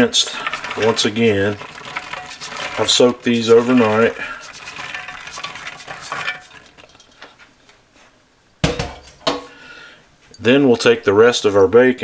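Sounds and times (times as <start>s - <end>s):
beans pattering into a pan: 0.0s - 7.4s
knocks on a pan: 8.6s - 9.5s.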